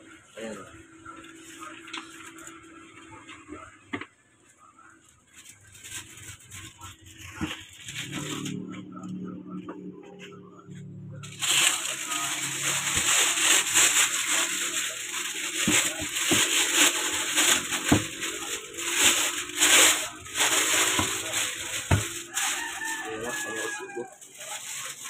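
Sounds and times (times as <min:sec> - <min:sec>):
plastic bag crinkling: 0:05.0 - 0:09.3, 0:11.2 - 0:25.0.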